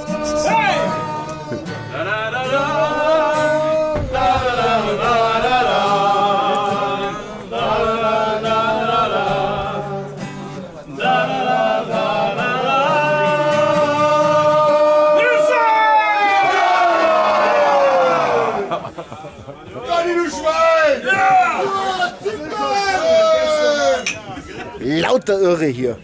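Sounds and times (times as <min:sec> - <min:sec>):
person singing sliding notes: 0:00.0 - 0:01.7.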